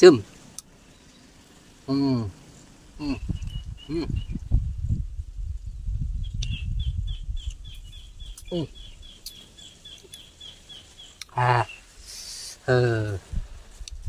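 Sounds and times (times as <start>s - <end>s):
man humming while eating: 3.0s - 4.3s
low rumble: 3.0s - 9.0s.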